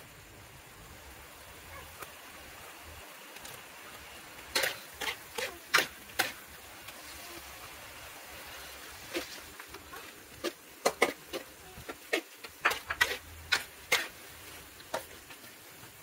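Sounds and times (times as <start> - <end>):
faint steady hiss: 0.0 - 16.0
metal spatula clanking on wok: 12.1 - 14.2.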